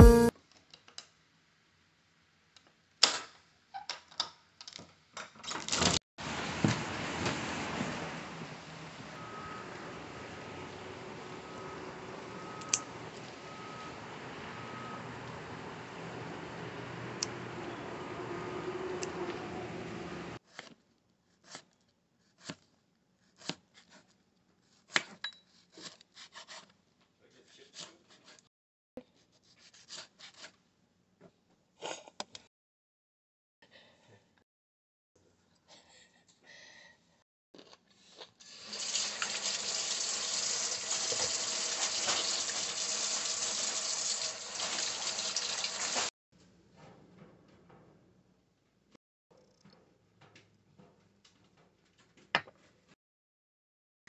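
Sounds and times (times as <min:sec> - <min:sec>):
tap water running into sink: 0:38.5 - 0:46.1.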